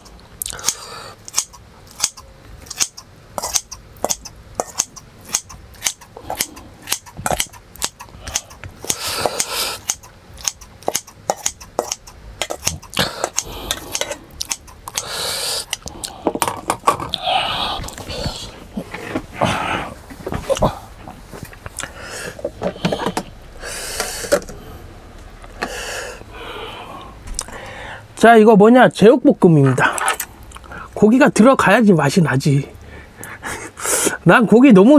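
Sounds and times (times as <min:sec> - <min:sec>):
scissors snipping: 0:00.6 - 0:15.1.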